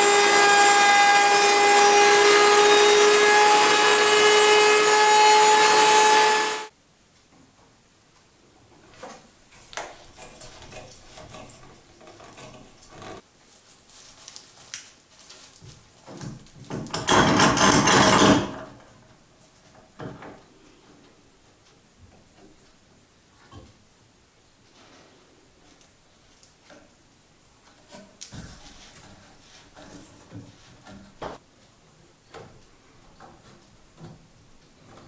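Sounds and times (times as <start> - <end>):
router cutting wood: 0.0 - 6.7
boards and clamps knocking: 16.1 - 18.9.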